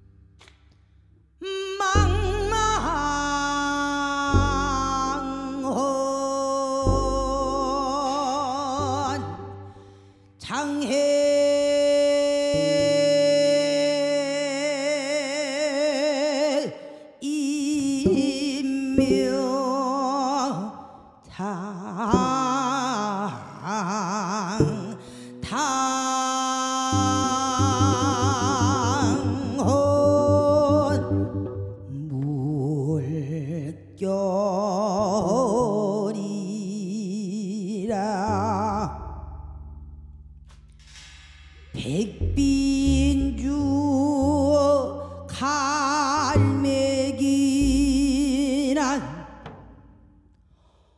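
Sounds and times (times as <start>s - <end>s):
low double bass notes: 0.0s - 14.3s, 26.8s - 35.8s, 37.9s - 50.5s
woman singing with vibrato: 1.4s - 9.8s, 10.4s - 39.1s, 41.8s - 49.4s.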